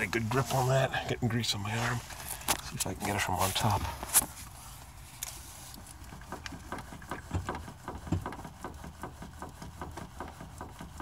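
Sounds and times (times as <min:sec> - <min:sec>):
steering linkage clicking and knocking: 0:05.8 - 0:11.0.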